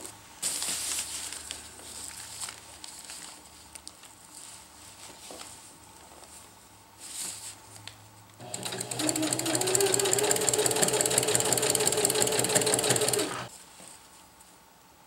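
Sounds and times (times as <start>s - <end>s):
nylon fabric rustling and crinkling: 0.4s - 6.3s.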